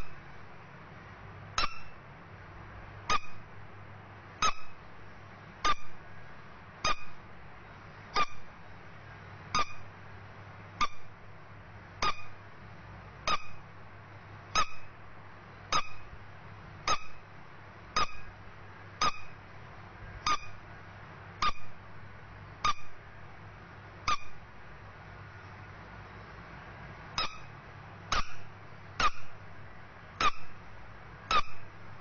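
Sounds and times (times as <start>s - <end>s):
rubber duck toy squeaking: 1.6s - 2.0s, 3.1s - 3.4s, 4.4s - 4.8s, 5.6s - 6.0s, 6.8s - 7.2s, 8.2s - 8.5s, 9.6s - 9.9s, 10.8s - 11.1s, 12.0s - 12.4s, 13.3s - 13.6s, 14.6s - 14.9s, 15.7s - 16.1s, 16.9s - 17.2s, 18.0s - 18.3s, 19.0s - 19.4s, 20.2s - 20.6s, 21.4s - 21.7s, 22.6s - 23.0s, 24.1s - 24.4s, 27.2s - 27.5s, 28.1s - 29.3s, 30.2s - 30.6s, 31.3s - 31.7s.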